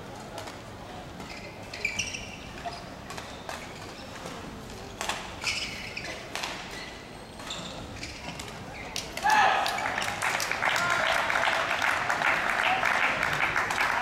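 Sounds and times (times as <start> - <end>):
shoes squeaking on court: 1.2 - 9.1.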